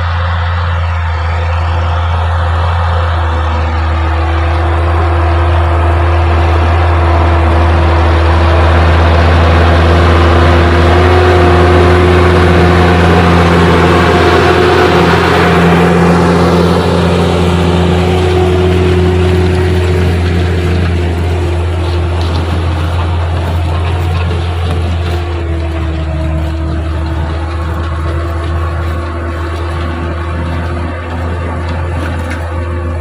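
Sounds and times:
tractor diesel engine under load: 0.0s - 33.0s.

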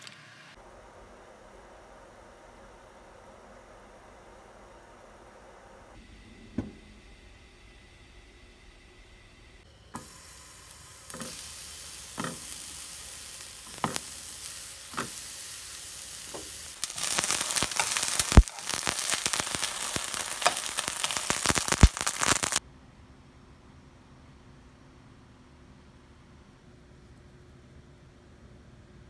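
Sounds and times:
food sizzling in hot oil: 10.0s - 22.6s.

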